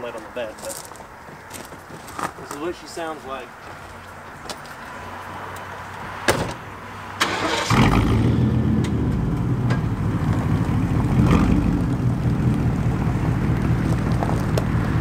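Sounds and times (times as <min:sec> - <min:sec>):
truck door slamming: 0:06.3 - 0:06.6
loud truck engine running: 0:07.3 - 0:15.0.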